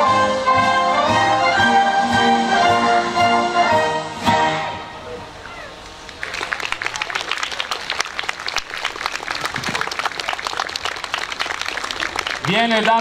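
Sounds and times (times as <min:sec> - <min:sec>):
crowd applauding: 0:06.0 - 0:13.0.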